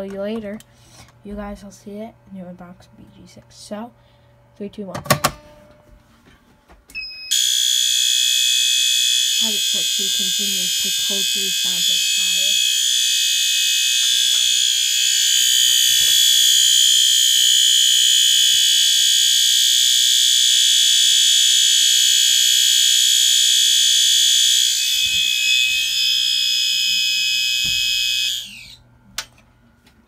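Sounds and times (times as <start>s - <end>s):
fire alarm horn continuous tone: 7.0s - 28.8s.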